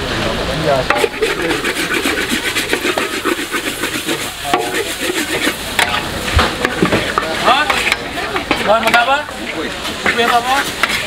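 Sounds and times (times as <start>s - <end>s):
hot pan sizzling: 0.0s - 11.0s
metal spatula scraping a wok: 0.9s - 11.0s.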